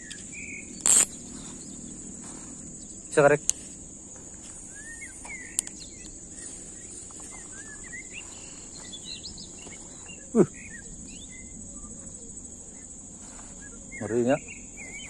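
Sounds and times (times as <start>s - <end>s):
sharp click: 0.0s - 1.2s
birds chirping: 0.0s - 15.0s
high insect shrilling: 0.0s - 15.0s.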